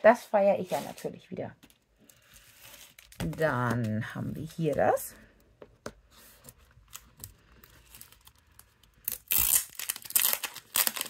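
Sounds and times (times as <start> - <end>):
plastic film crinkling: 0.9 - 5.0, 6.8 - 11.0.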